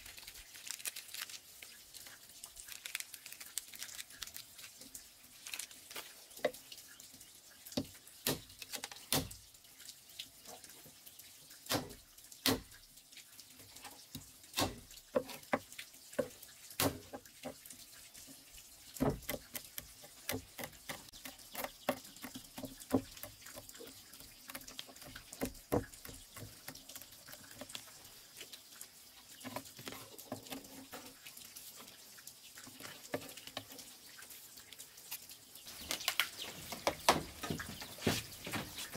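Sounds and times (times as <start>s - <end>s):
knife chopping on wooden block: 19.0s - 23.6s.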